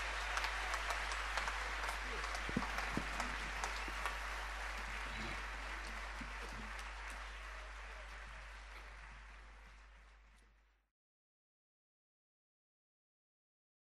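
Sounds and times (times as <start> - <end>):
audience applause: 0.0 - 10.7.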